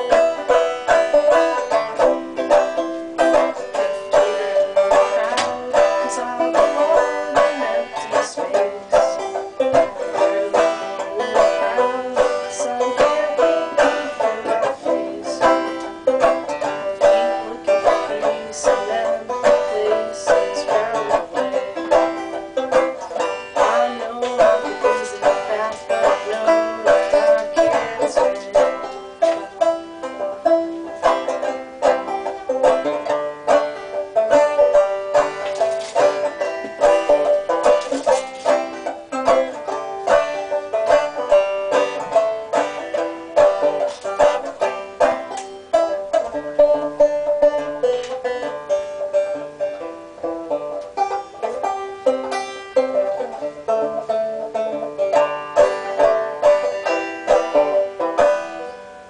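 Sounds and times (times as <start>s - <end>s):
banjo clawhammer playing: 0.0s - 59.0s.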